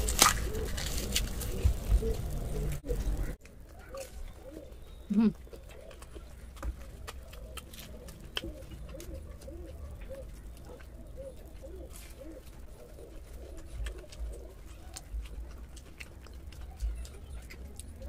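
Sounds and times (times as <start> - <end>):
fried crust crackling: 0.0 - 4.6
birds cooing: 0.0 - 18.0.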